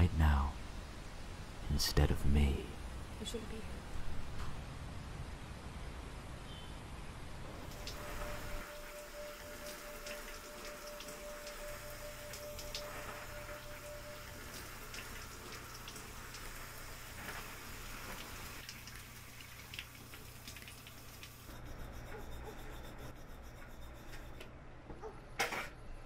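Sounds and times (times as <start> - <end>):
shower water spraying: 7.6 - 21.6.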